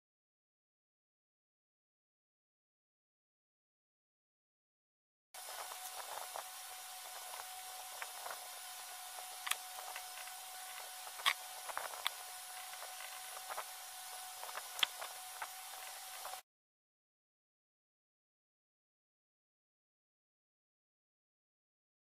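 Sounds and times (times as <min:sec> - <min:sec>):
faint steady whine: 0:05.4 - 0:16.4
steady hiss: 0:05.4 - 0:16.4.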